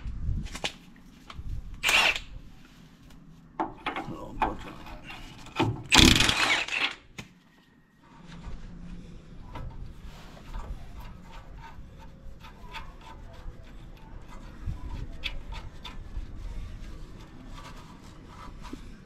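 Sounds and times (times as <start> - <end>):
loud burst of noise: 5.9 - 6.8
faint clicks and scraping: 6.7 - 19.0.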